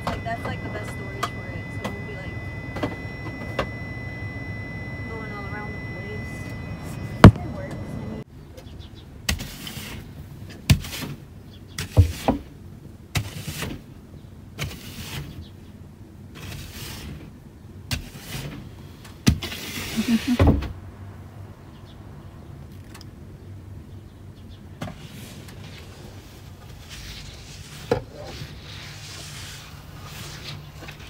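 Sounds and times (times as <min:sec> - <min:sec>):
brush sweeping snow off glass: 0:09.3 - 0:10.1, 0:10.7 - 0:11.2, 0:11.8 - 0:12.4, 0:13.2 - 0:13.8, 0:14.6 - 0:15.4, 0:16.4 - 0:17.3, 0:17.9 - 0:18.7, 0:19.4 - 0:20.4, 0:24.9 - 0:31.0.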